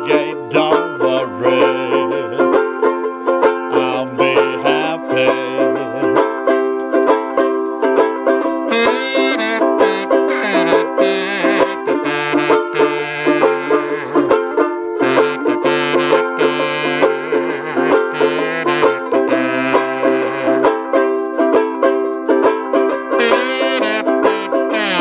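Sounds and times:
banjo ukulele strumming: 0.0s - 25.0s
small brass horn melody: 8.6s - 21.0s, 23.1s - 25.0s.

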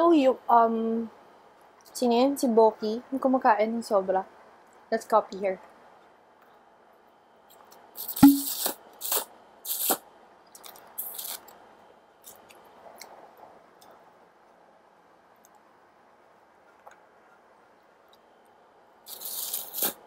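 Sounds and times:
sharp knock: 8.2s - 8.5s.

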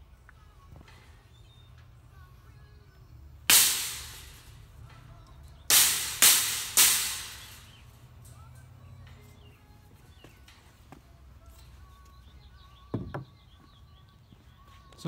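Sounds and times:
mallet striking metal: 3.5s - 4.4s, 5.7s - 7.8s.

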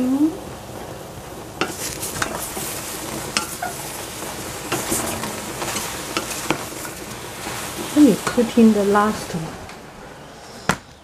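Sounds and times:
spatula scraping a saucepan: 1.6s - 9.2s.

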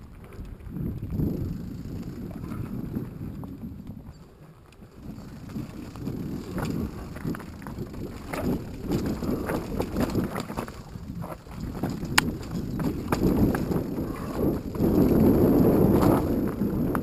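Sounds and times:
bike rattling: 0.0s - 17.0s
wind on the microphone: 0.0s - 17.0s
tyres crunching over loose stones: 4.6s - 16.4s.

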